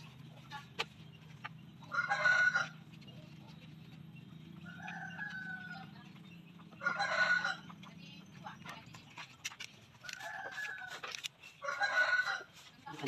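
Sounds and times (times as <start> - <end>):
steady low hum: 0.0 - 13.0
roosters crowing: 1.7 - 3.0, 4.4 - 7.9, 10.0 - 12.8.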